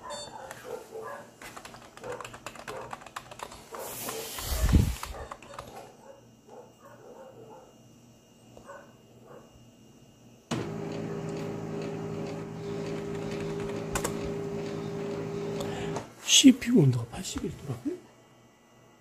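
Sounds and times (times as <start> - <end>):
computer fans humming: 10.5 - 18.0.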